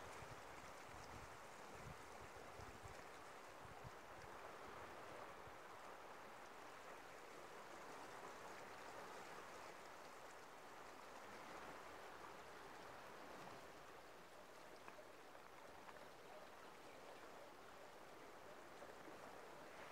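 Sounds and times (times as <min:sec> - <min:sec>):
faint ticks: 0:14.4 - 0:16.5.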